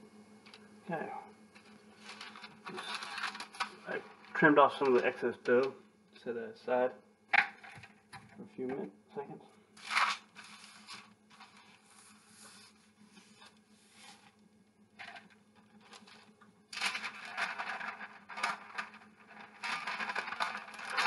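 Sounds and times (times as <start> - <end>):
parchment paper crinkling: 1.5 - 5.8, 9.7 - 14.4, 15.0 - 21.0.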